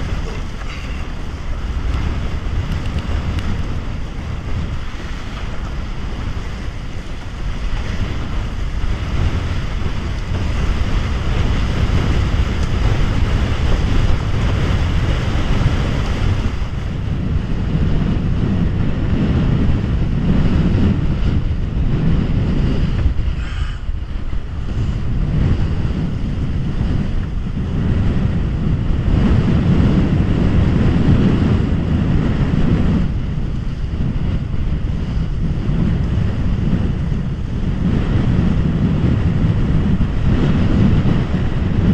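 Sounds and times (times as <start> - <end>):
water rushing along a hull: 0.0 - 41.9
wind buffeting microphone: 0.0 - 41.9.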